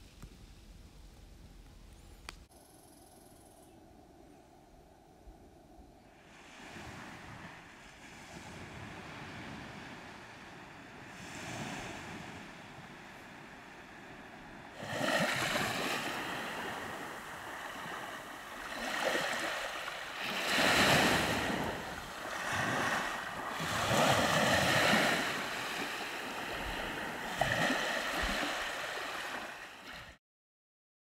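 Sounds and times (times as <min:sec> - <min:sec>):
small waves washing on sand: 0:06.1 - 0:30.2.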